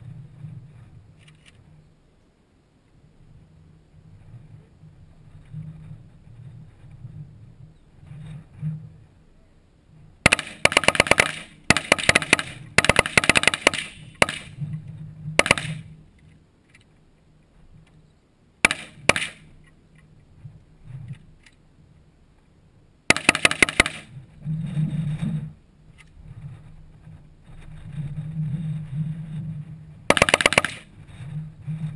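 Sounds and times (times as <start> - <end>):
rifle gunfire: 10.2 - 14.6, 15.4 - 15.9, 18.6 - 19.5, 23.1 - 24.1, 30.1 - 30.9.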